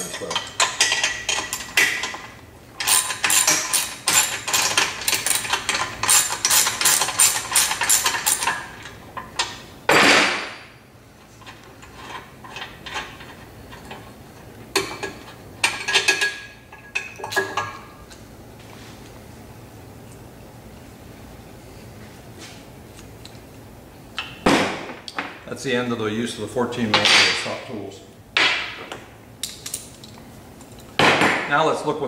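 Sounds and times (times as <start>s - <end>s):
wrench and bolt clinking: 0.0s - 9.6s.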